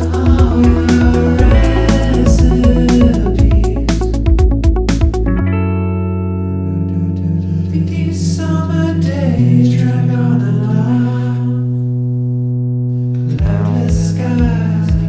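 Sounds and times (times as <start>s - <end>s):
person singing: 0.0s - 4.6s, 6.6s - 11.9s, 13.2s - 15.0s
held chords: 0.0s - 7.4s.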